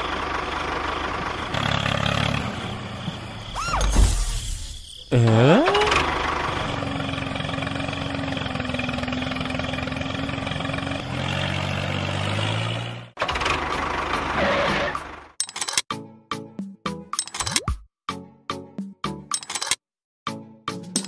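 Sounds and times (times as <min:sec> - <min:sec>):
tractor engine running: 0:00.0 - 0:03.6, 0:05.1 - 0:15.8.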